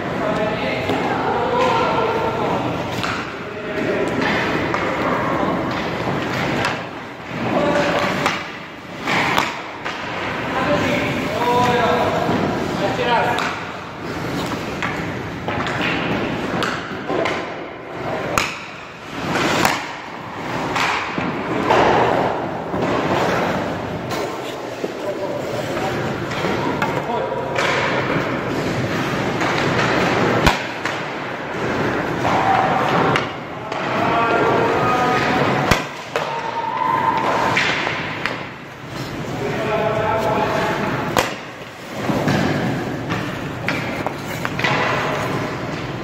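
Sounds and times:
skates scraping on ice: 2.9s - 17.3s, 17.9s - 33.2s, 33.8s - 46.0s
hockey stick knocking puck: 2.9s - 25.1s, 26.2s - 39.3s, 40.2s - 46.0s
sharp puck cracks: 18.3s - 23.5s, 29.4s - 33.9s
sharp crack: 29.4s - 31.2s
skate blades scraping on ice: 38.9s - 46.0s.

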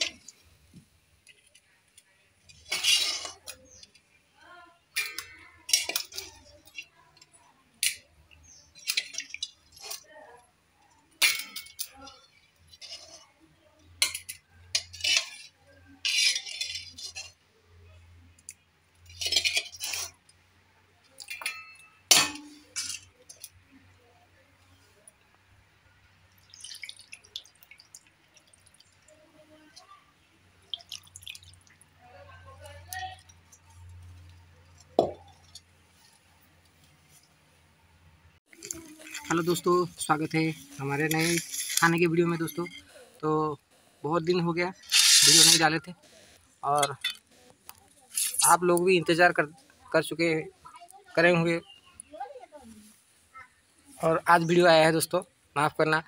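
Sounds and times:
metal plates and bowls clattering: 2.5s - 3.9s, 4.9s - 7.0s, 8.8s - 10.0s, 11.2s - 13.2s, 13.8s - 17.4s, 19.0s - 20.2s, 21.2s - 23.5s.

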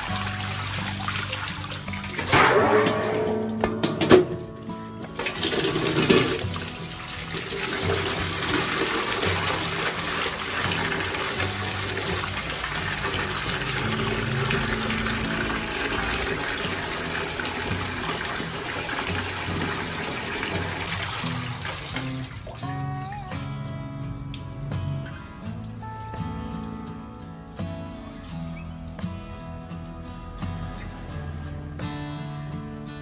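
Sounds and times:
tap water splashing into metal basin: 0.0s - 25.8s
soft background music: 0.0s - 33.0s.

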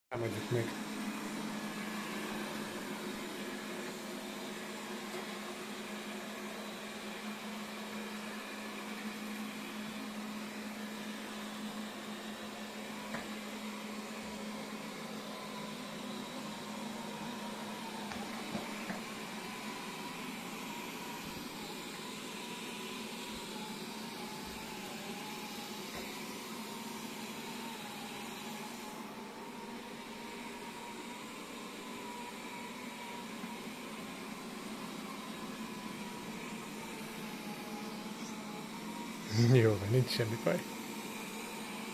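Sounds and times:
robot vacuum cleaner whirring: 0.1s - 41.9s.

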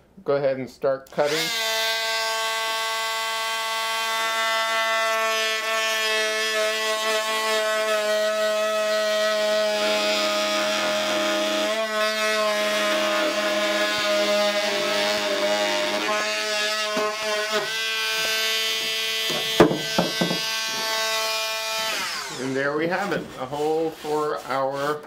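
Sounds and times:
oscillating multi-tool cutting wood: 1.2s - 23.2s.

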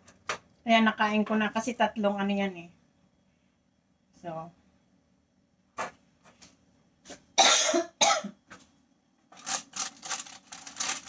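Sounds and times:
person coughing: 7.4s - 8.4s.

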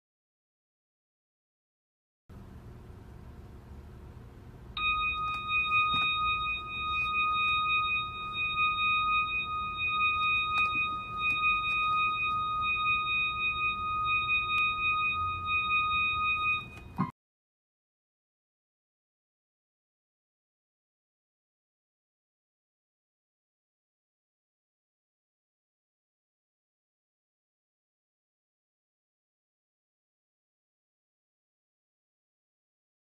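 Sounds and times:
steady high-pitched tone: 4.7s - 17.1s.

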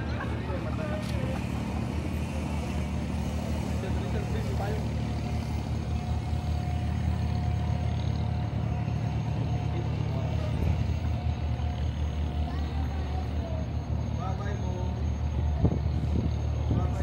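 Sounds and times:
engine idling hum: 0.0s - 17.0s
thin steady tone: 0.2s - 17.0s.

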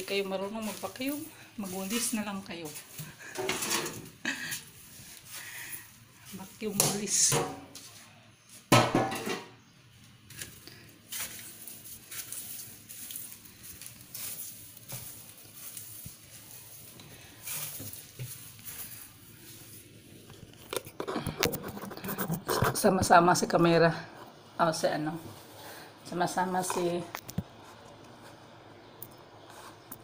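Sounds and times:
grass broom sweeping stairs: 0.0s - 8.7s, 10.4s - 20.1s.

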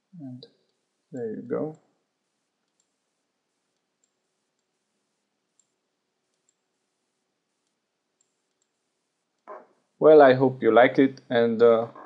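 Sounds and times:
faint mouse clicks: 2.6s - 3.0s, 3.7s - 4.8s, 5.5s - 6.6s, 7.6s - 8.8s.

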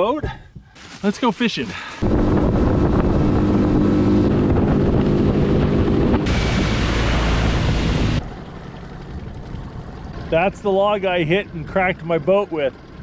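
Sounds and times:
outboard motor droning: 2.0s - 13.0s.

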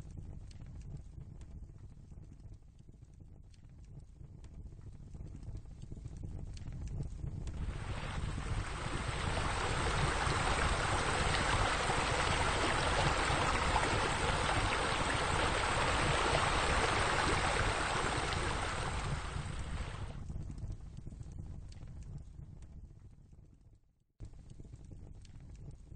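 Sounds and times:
falling water rushing: 7.6s - 20.1s.

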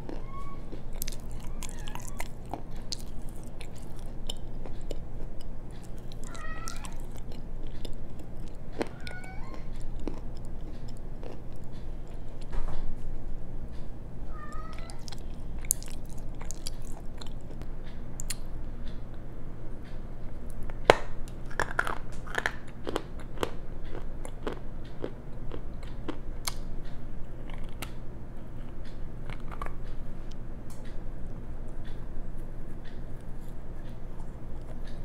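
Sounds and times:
crunchy chewing: 0.0s - 12.5s, 14.7s - 18.6s, 20.4s - 35.0s.

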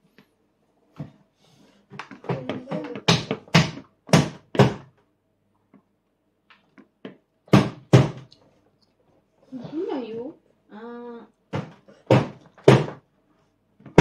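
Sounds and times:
voice: 2.2s - 3.1s, 9.5s - 11.3s
loud dull knocks: 7.5s - 8.3s.

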